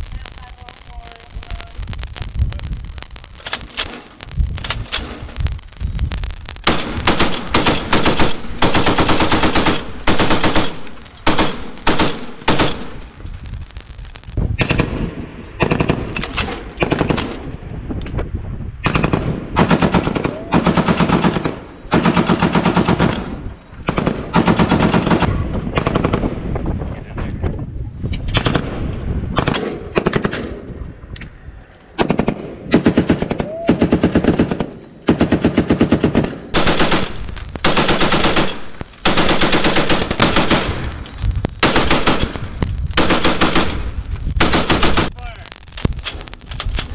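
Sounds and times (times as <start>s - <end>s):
heavy machine gun bursts: 6.6s - 13.2s, 33.9s - 45.2s.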